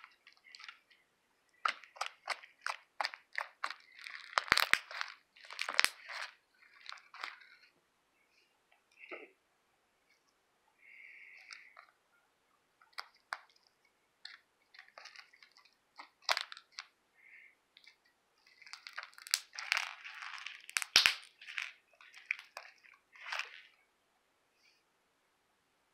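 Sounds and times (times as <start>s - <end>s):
slime clicking and popping: 1.6s - 7.4s, 14.2s - 16.9s, 18.7s - 23.5s.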